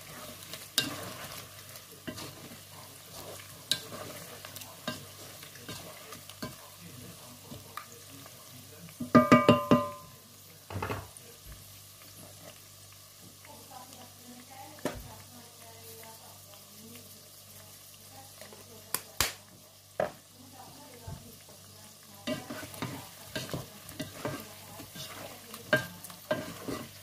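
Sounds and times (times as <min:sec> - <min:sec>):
wooden spatula stirring: 0:00.0 - 0:08.3, 0:20.0 - 0:27.0
meat frying in a pot: 0:00.0 - 0:27.0
ringing knocks against pot: 0:09.0 - 0:10.1.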